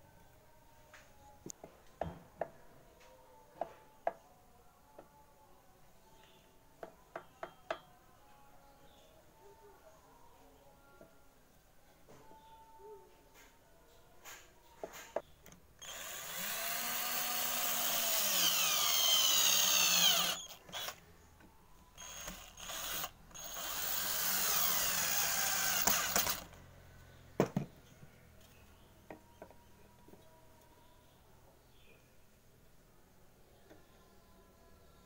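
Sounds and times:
cordless drill boring into wood: 0:15.8 - 0:21.0, 0:22.0 - 0:26.5.

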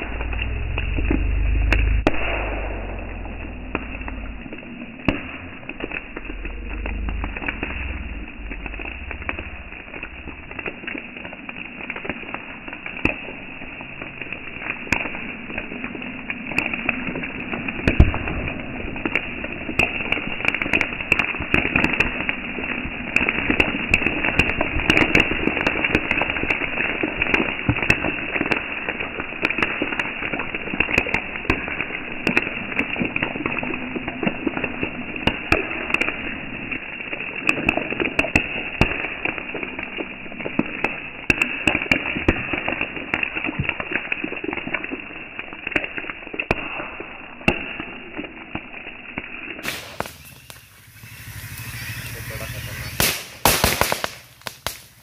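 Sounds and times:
metal reacting on water crackling: 0:00.0 - 0:55.0.

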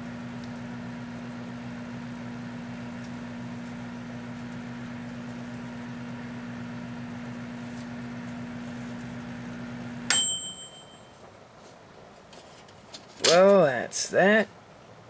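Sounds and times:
microwave oven humming: 0:00.0 - 0:11.5
high microwave beep: 0:10.0 - 0:11.2.

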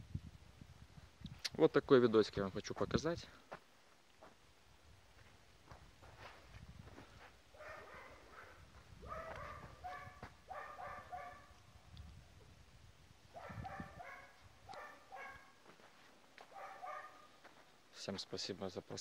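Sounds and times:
dog barking: 0:07.6 - 0:11.6, 0:13.4 - 0:15.6, 0:16.5 - 0:17.4.

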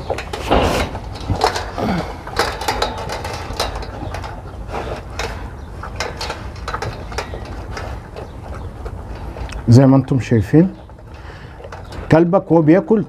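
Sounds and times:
dog chewing raw meat: 0:00.0 - 0:09.7
dog crunching dry kibble: 0:00.0 - 0:13.0.

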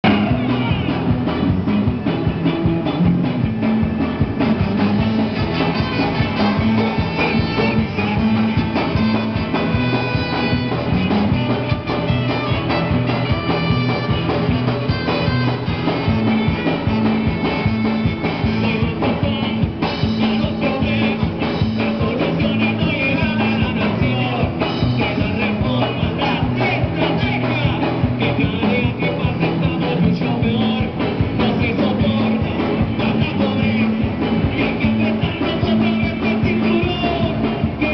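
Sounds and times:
bass line: 0:00.0 - 0:37.9
live band playing: 0:00.0 - 0:37.9
trumpet and trombone: 0:04.5 - 0:18.9.

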